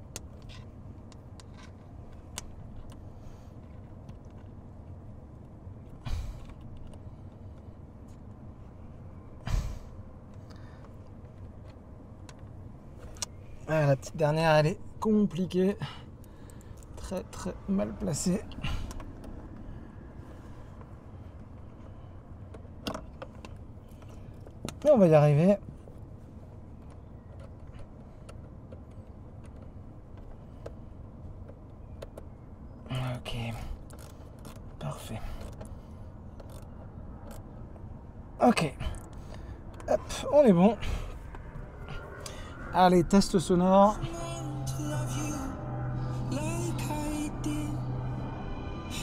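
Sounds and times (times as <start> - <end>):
low steady background rumble: 0.0 - 49.0
steady low hum: 33.3 - 49.0
breathy sighs: 40.8 - 42.8.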